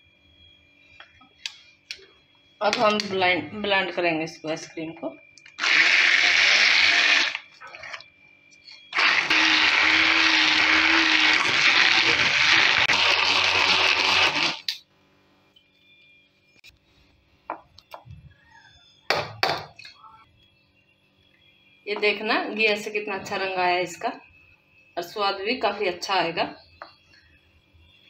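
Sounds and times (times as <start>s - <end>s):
electric hand blender running: 5.6s - 7.4s, 8.9s - 14.7s.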